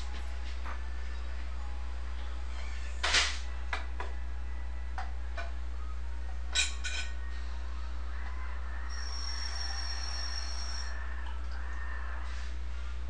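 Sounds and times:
low electrical hum: 0.0s - 13.0s
thin high steady tone: 8.9s - 11.0s.

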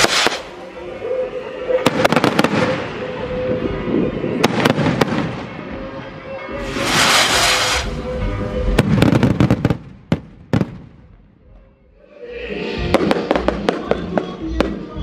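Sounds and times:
fireworks cracking and popping: 0.0s - 0.5s, 6.6s - 10.9s
music: 0.0s - 15.0s
firework hissing whoosh: 6.6s - 8.2s.

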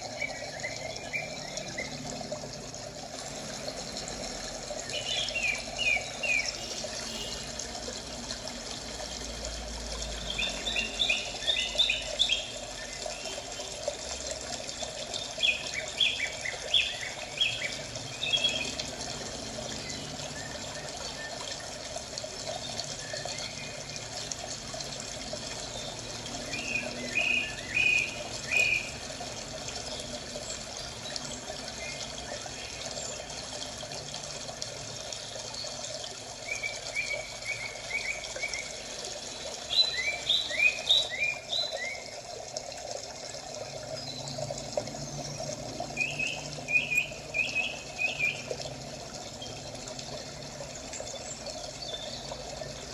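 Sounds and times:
running water: 0.0s - 52.9s
birds chirping: 43.9s - 48.5s.

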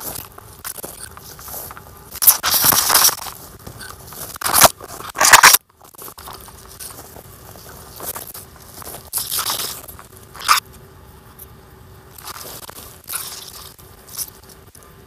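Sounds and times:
footsteps crunching dry leaves: 0.0s - 10.6s, 12.2s - 14.4s
plants brushing microphone: 0.0s - 10.6s, 12.2s - 14.9s.

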